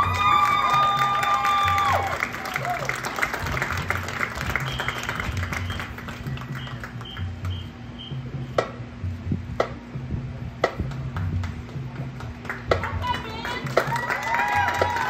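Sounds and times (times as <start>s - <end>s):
low drum notes: 3.4s - 14.0s.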